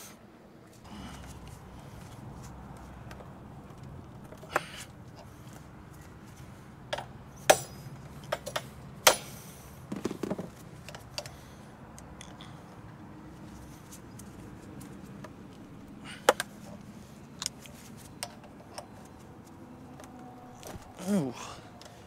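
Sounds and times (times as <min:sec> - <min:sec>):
metal clinks and knocks: 0:06.9 - 0:11.3.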